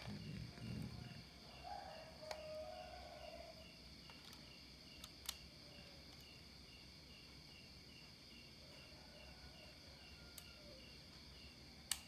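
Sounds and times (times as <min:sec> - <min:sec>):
high insect drone: 0:00.0 - 0:11.9
crickets chirping: 0:00.0 - 0:12.0
small clicks: 0:04.1 - 0:05.5.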